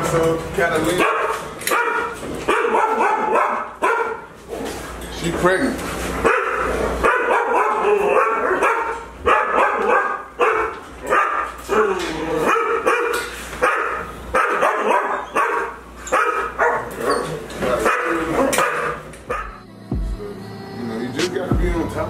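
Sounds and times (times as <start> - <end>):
dogs barking: 0.8 - 4.8, 6.2 - 19.7.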